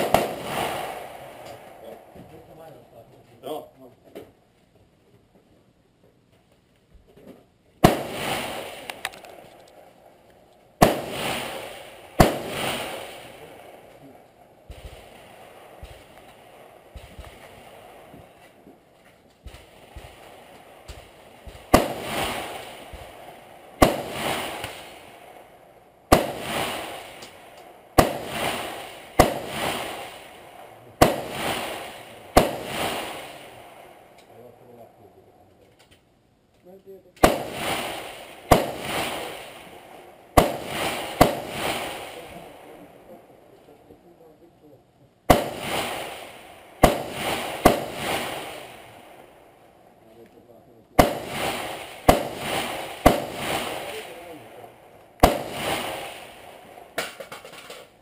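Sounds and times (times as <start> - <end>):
rifle shots with echo: 0.0 - 2.2, 7.8 - 10.0, 10.8 - 18.4, 19.4 - 34.4, 37.2 - 43.2, 45.3 - 49.4, 50.9 - 57.9.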